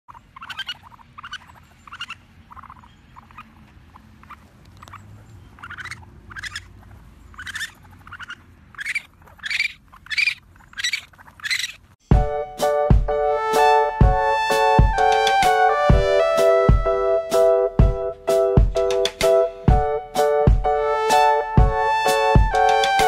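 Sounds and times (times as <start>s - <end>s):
baby raccoons chirping cries: 0.1s - 12.0s.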